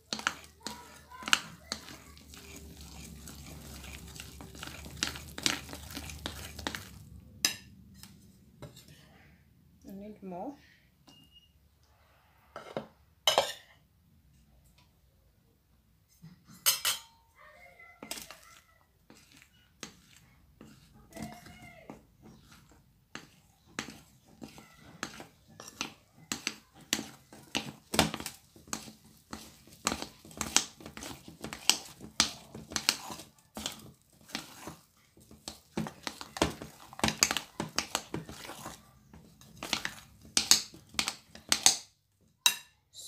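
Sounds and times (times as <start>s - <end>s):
metal spoon scraping bowl: 0.0s - 9.0s, 18.0s - 41.7s.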